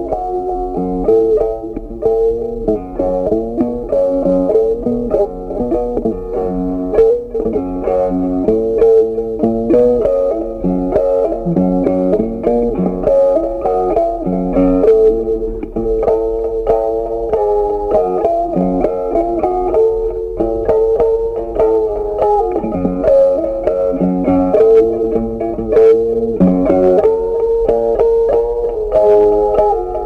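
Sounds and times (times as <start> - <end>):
plucked guitar melody: 0.0 - 30.0.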